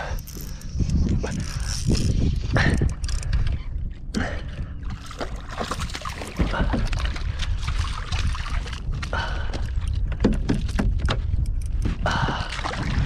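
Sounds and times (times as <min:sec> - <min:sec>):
wind rumble on microphone: 0:00.0 - 0:13.0
water lapping against kayak hull: 0:01.3 - 0:13.0
splashes: 0:05.0 - 0:09.5.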